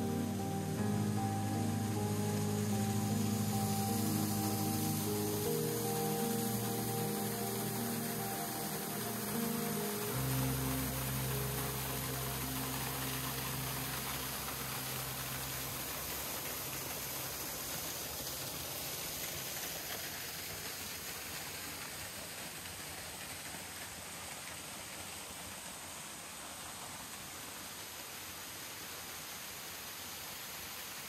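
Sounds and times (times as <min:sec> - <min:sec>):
background music low notes: 0:00.0 - 0:19.2
creek and waterfalls rushing: 0:00.0 - 0:31.0.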